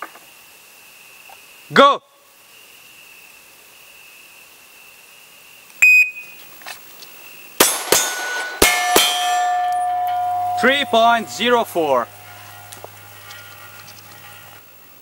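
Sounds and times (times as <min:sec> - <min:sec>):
pistol shots: 0:07.6 - 0:09.0
sharp ping: 0:07.6 - 0:12.8
steel targets ringing: 0:07.6 - 0:13.3
faint high tone: 0:09.4 - 0:12.5.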